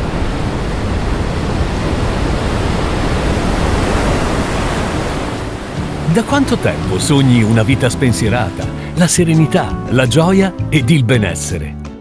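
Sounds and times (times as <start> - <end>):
ocean surf rushing: 0.0 - 11.0.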